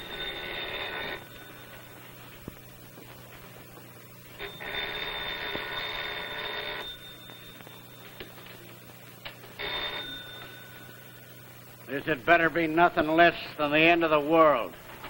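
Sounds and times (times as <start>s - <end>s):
telephone bell ringing: 0.0s - 2.6s, 4.4s - 11.8s
steady low hum: 0.0s - 15.0s.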